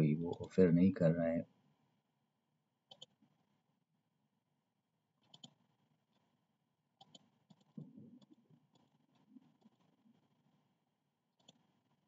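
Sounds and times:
computer mouse clicking: 2.9 - 3.2, 5.2 - 6.3, 7.0 - 10.0, 11.4 - 11.8.

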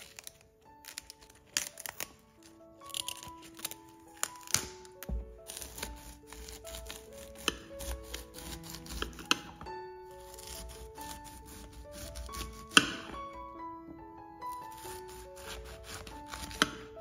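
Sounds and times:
knife crunching through cauliflower: 0.0 - 9.4, 14.5 - 16.8
piano background music: 0.0 - 17.0.

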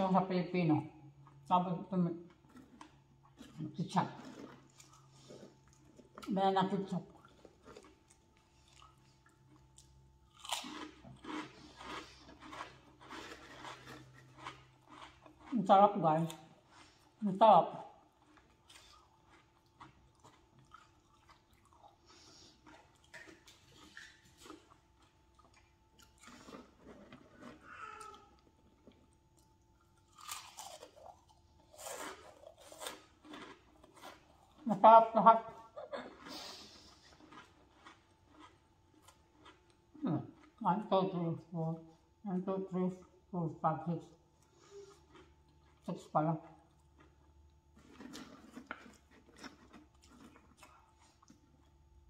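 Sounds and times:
crunchy chip being chewed: 2.3 - 6.3, 7.2 - 15.6, 18.0 - 34.7, 35.9 - 40.6, 44.4 - 45.9, 46.7 - 51.9.

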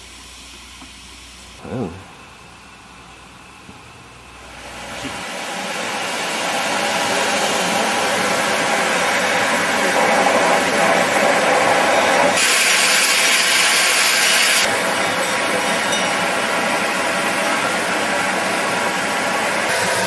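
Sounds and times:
bright steam hiss: 0.0 - 1.6, 4.3 - 20.0
steam locomotive hissing: 4.1 - 20.0.

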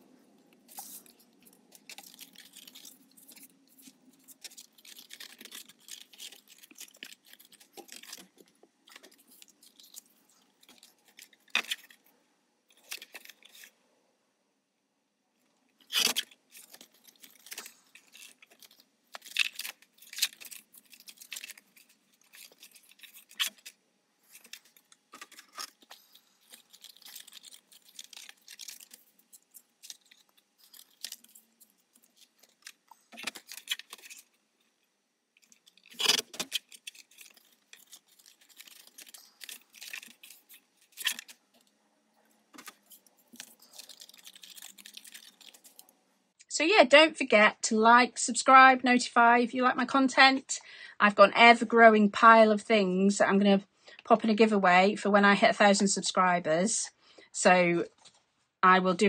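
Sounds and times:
cardstock rustling and folding: 0.0 - 13.8, 15.8 - 46.0.

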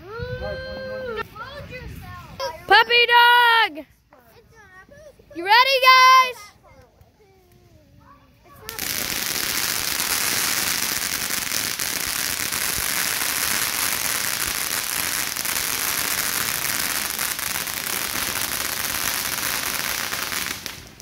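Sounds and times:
firework spraying sparks hiss: 8.6 - 21.0.

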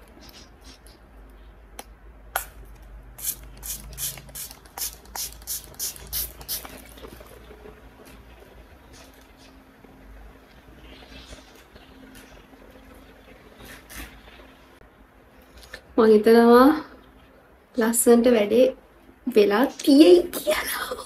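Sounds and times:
spray bottle spritzing: 3.2 - 7.1.

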